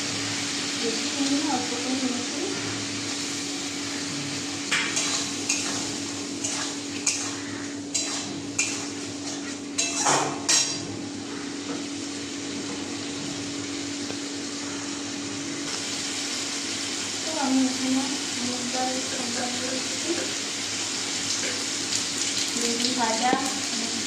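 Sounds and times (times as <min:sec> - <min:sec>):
steady hiss and hum: 0:00.0 - 0:24.0
metal spatula scraping a pan: 0:04.8 - 0:10.8.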